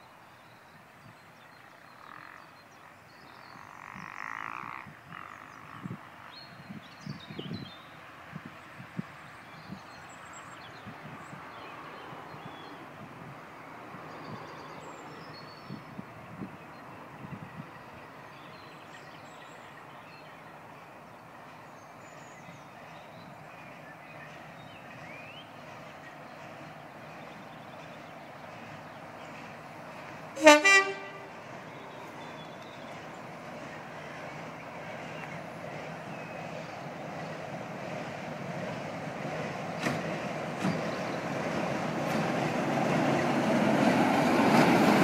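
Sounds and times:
birdsong chirps: 0:00.0 - 0:45.0
distant locomotive engine: 0:07.8 - 0:45.0
distant locomotive horn: 0:30.3 - 0:31.5.

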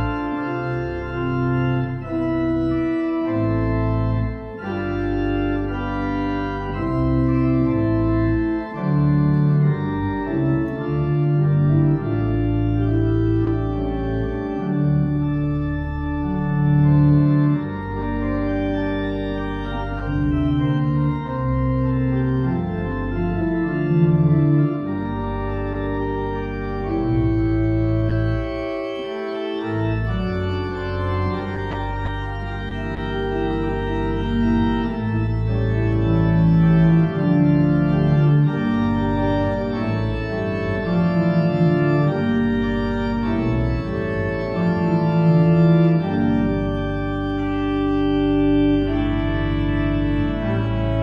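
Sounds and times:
pipe organ playing chords: 0:00.0 - 0:51.0.

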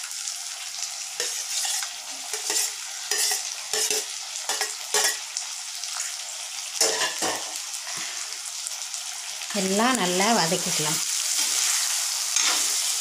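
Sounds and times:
vegetables sizzling in a pot: 0:00.0 - 0:13.0
steel spoon scraping plate: 0:01.2 - 0:05.2, 0:11.4 - 0:12.8.

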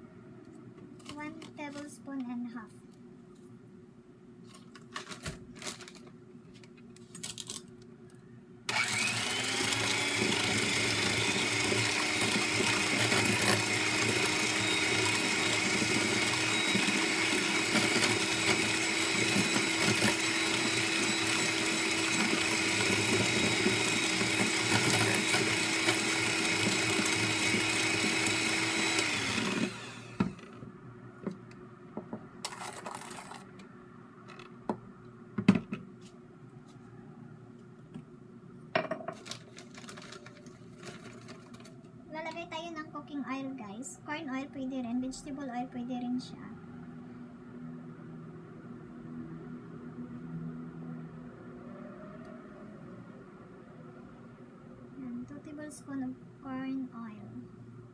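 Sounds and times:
electric hand mixer whisking: 0:08.7 - 0:30.6, 0:32.5 - 0:33.4.

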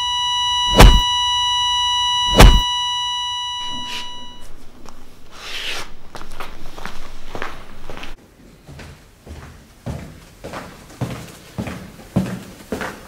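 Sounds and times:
high ringing tone: 0:00.0 - 0:05.2
heavy thuds: 0:00.7 - 0:01.0, 0:02.3 - 0:02.6.

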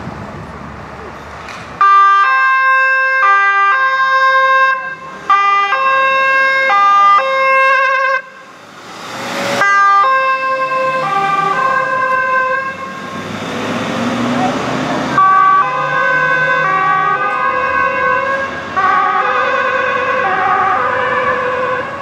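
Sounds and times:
electronic siren multi-tone: 0:01.8 - 0:08.4, 0:09.6 - 0:13.2, 0:15.1 - 0:22.0.

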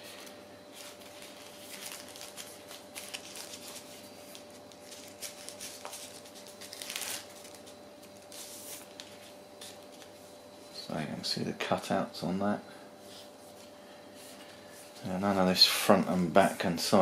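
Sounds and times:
plastic film rustling and crinkling: 0:00.1 - 0:10.2.

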